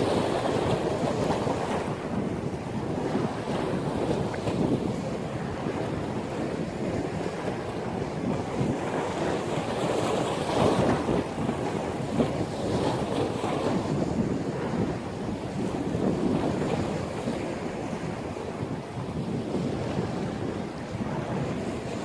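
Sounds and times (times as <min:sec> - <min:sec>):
sea waves breaking: 0:00.0 - 0:22.0
wind buffeting microphone: 0:00.0 - 0:22.0.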